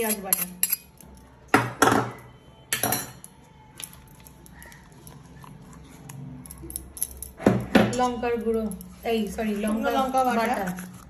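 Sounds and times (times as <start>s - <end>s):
spoon clinking in bowls: 0.0s - 1.4s, 2.0s - 3.4s.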